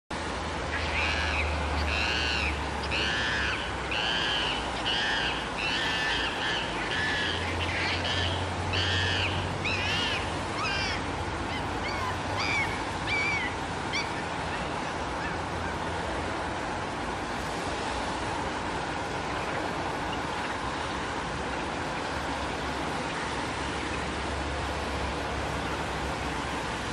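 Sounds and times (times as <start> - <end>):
high-pitched animal calls: 0.8 - 14.2.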